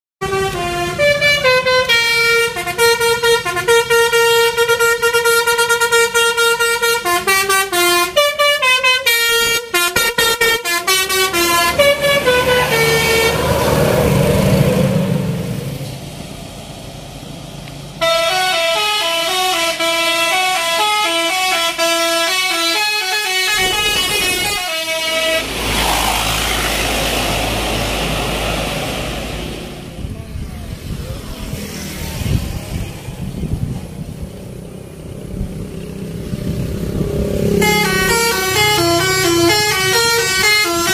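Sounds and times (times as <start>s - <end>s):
multi-tone horn melody: 0.2s - 14.3s, 18.0s - 28.7s, 37.4s - 40.9s
bus passing rumble: 0.2s - 40.9s.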